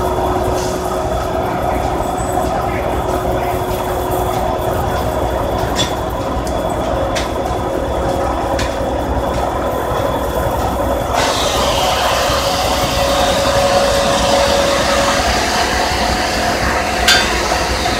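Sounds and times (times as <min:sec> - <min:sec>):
sawmill machine rumble: 0:09.0 - 0:17.9.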